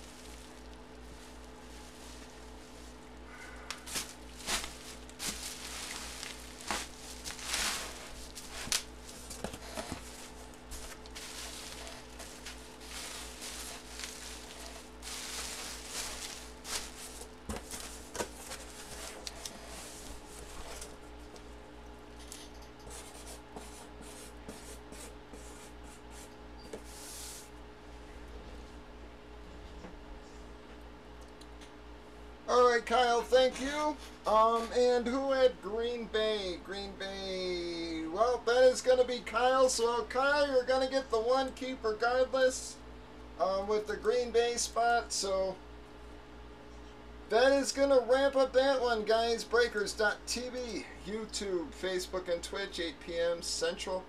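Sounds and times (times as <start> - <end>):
bubble wrap crinkling: 0.0 - 21.0
low electrical hum: 0.0 - 54.0
cardboard box rustling: 3.8 - 19.2.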